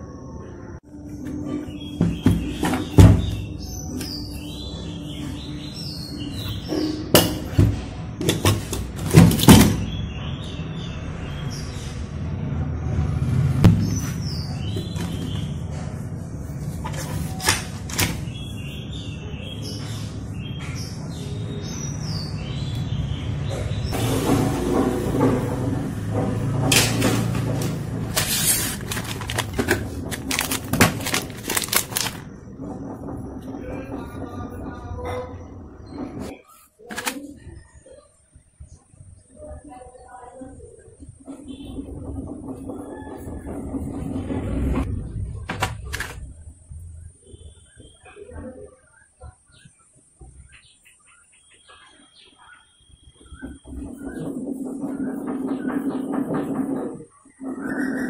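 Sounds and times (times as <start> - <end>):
loudspeakers clunking in plastic basket: 7.2 - 9.9, 26.4 - 32.3
plastic boxes clattering: 8.2 - 9.8, 26.7 - 32.3.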